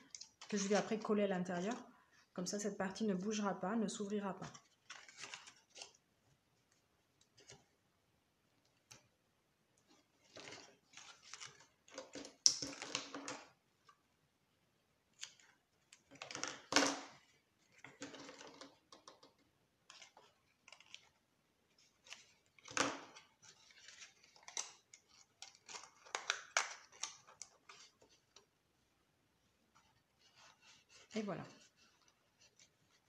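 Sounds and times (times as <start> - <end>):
tape and paper crinkling: 4.4 - 6.0, 9.9 - 13.1, 19.9 - 28.5.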